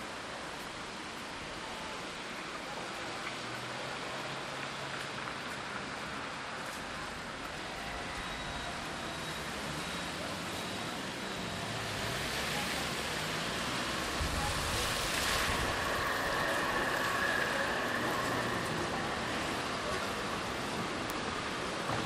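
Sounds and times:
road vehicle rushing noise: 11.4s - 22.0s.

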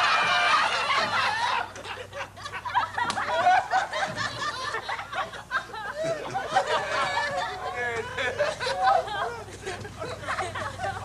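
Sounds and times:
people laughing: 0.0s - 11.0s
indistinct chatter: 5.7s - 11.0s.

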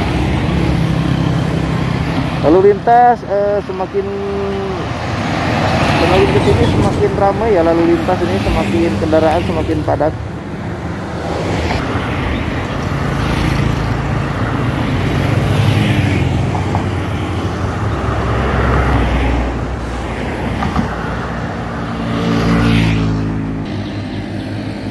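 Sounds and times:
cars passing: 0.0s - 24.9s
motorcycles passing: 0.0s - 24.9s.

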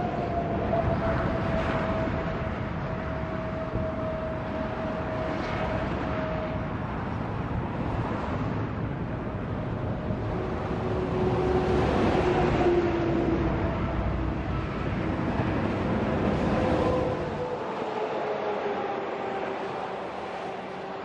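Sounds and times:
highway traffic rushing: 0.0s - 21.0s
truck passing close: 9.3s - 21.0s.

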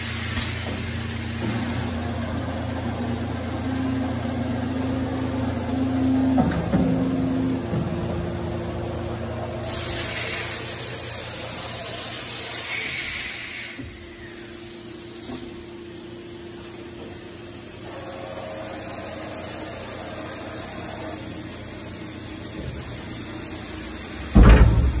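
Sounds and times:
low mechanical hum: 0.0s - 25.0s
air hissing: 9.4s - 15.7s
loud thump: 24.3s - 25.0s.

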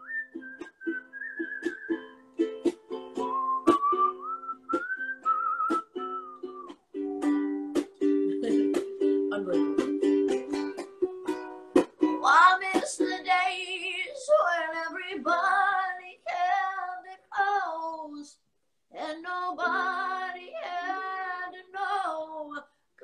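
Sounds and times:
ukulele strumming: 0.0s - 17.1s, 19.0s - 22.6s
person singing with vibrato: 8.2s - 10.1s, 18.9s - 22.7s.

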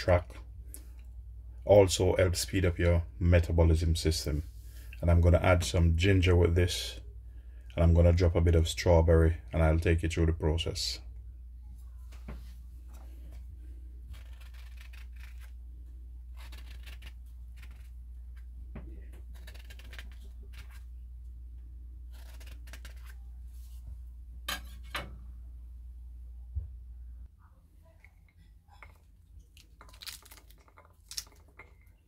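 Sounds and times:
steady low hum: 0.0s - 32.0s
scratchy crackles of fruit rind: 14.0s - 15.6s, 16.3s - 20.9s, 22.1s - 23.2s, 29.5s - 31.8s.

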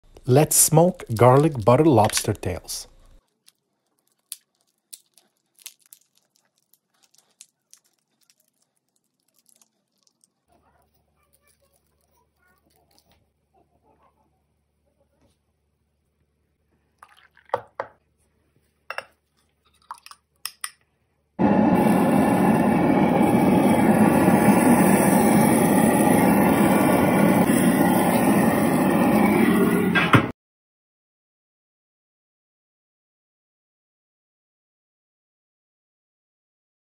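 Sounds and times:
faint steady whine: 21.4s - 29.8s.

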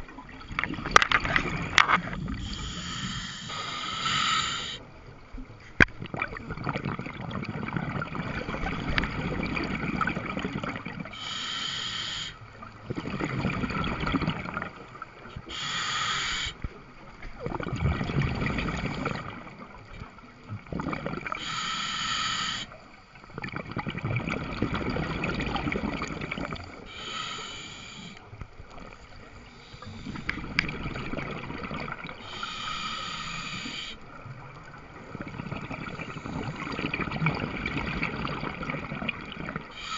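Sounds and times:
regulator hissing inhalation: 2.3s - 4.8s, 11.1s - 12.4s, 15.5s - 16.6s, 21.3s - 22.8s, 26.8s - 28.2s, 32.2s - 34.0s
bubbling exhalation underwater: 6.0s - 11.0s, 12.9s - 14.8s, 17.4s - 19.5s, 20.6s - 21.4s, 23.3s - 26.7s, 30.1s - 32.2s, 35.1s - 39.7s.

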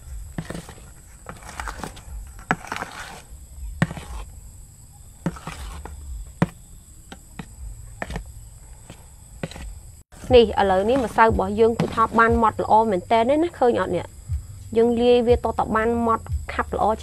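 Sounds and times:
soft wet batter scraping: 0.0s - 4.4s, 5.0s - 6.6s, 7.2s - 12.2s.

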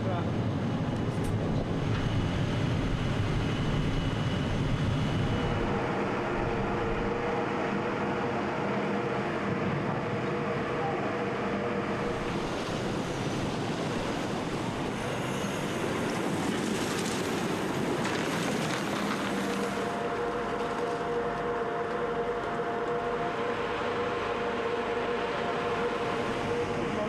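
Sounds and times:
boat engine hum: 0.0s - 27.0s
rushing wind and water: 11.8s - 20.2s.

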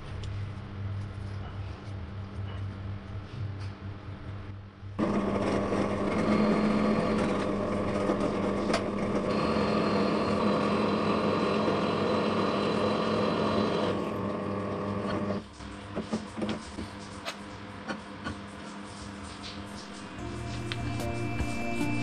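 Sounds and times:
drill press motor hum: 5.0s - 15.4s
high-pitched whine: 19.7s - 22.0s.

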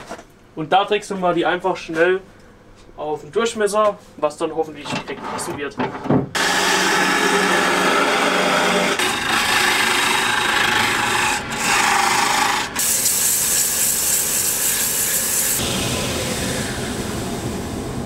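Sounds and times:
chisel cutting wood on a lathe: 6.4s - 15.6s
sandpaper hissing on spinning wood: 10.2s - 15.6s.

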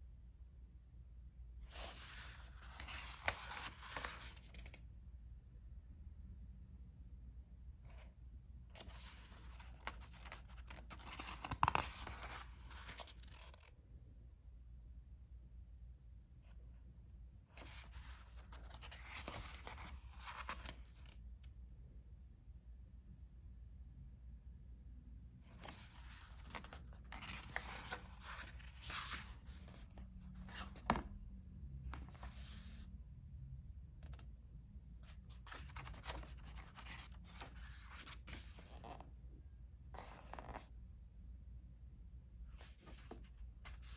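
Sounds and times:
book page turning: 1.7s - 4.8s, 8.8s - 13.7s, 17.6s - 21.2s, 25.5s - 31.2s, 31.9s - 32.8s, 35.0s - 39.1s, 40.0s - 40.7s, 42.6s - 43.9s.

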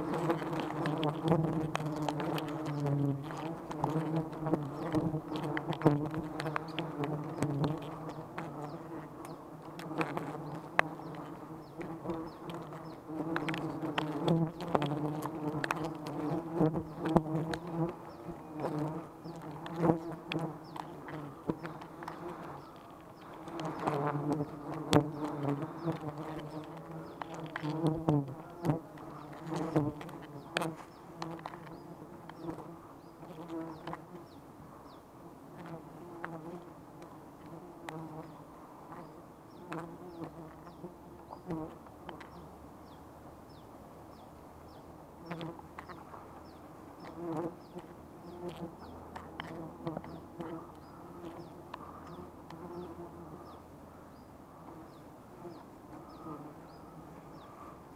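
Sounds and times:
rustling: 0.0s - 34.2s
bees buzzing: 0.0s - 53.7s, 54.6s - 57.9s.

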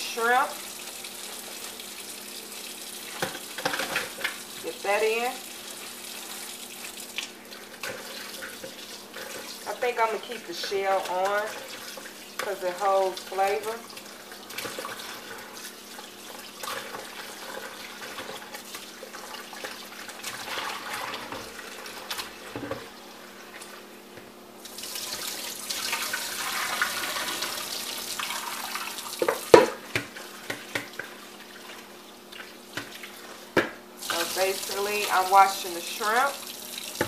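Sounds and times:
water splashing and sloshing: 5.8s - 23.8s, 24.6s - 37.0s
faucet running into a plastic bowl: 24.6s - 31.8s, 34.0s - 37.0s.

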